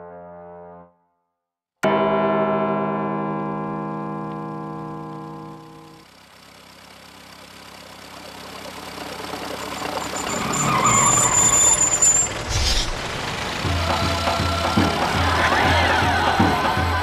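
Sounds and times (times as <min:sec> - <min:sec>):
thin high squeal: 0:09.6 - 0:13.0
rushing rumble: 0:12.1 - 0:16.1.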